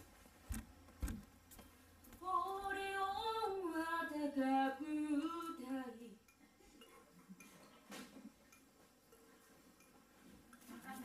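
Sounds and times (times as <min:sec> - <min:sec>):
person singing unaccompanied: 0:02.2 - 0:06.2.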